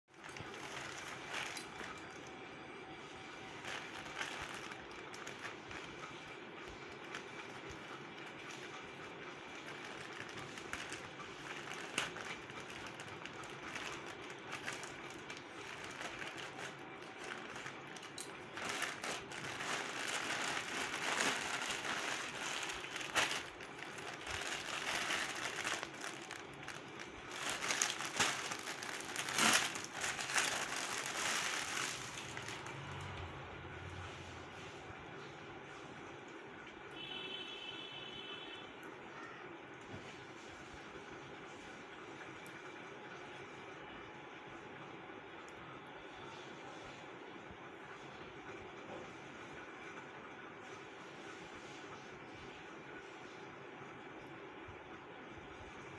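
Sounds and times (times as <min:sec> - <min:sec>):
plastic mailer bag crinkling: 0:00.1 - 0:02.3, 0:03.4 - 0:08.8, 0:09.5 - 0:32.9.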